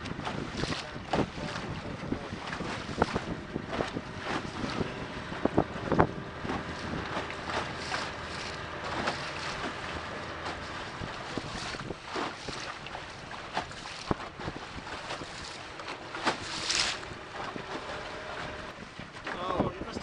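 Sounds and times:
boat engine humming: 0:00.0 - 0:20.0
hull slapping on waves: 0:00.0 - 0:20.0
wind buffeting microphone: 0:00.0 - 0:20.0.

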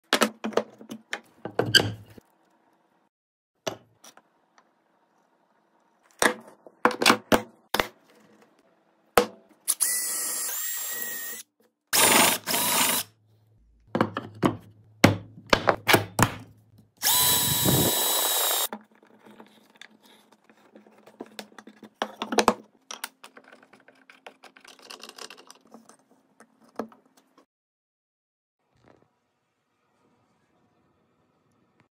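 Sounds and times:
power drill boring into wood: 0:09.7 - 0:13.1, 0:17.0 - 0:18.7.

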